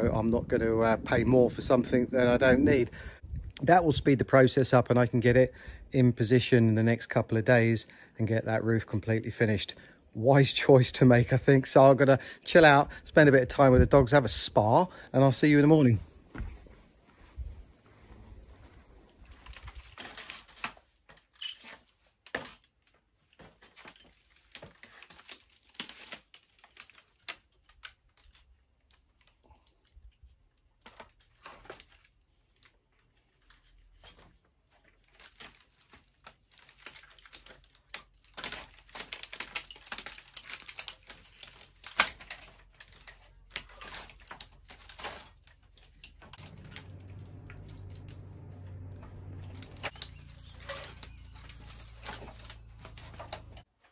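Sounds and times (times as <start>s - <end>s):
reed matting crackling and rustling: 45.8s - 53.7s
low steady hum: 46.4s - 53.6s.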